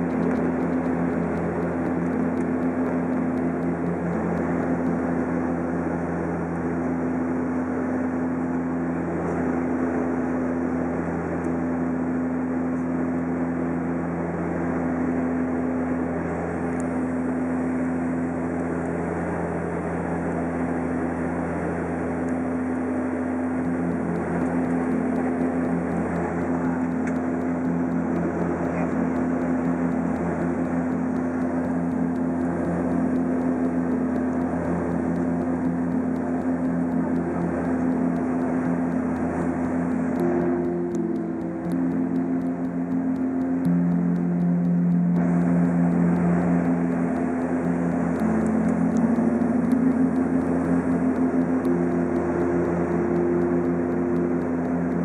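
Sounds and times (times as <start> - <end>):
airliner cabin drone: 0.0 - 55.0
low humming tone: 0.0 - 55.0.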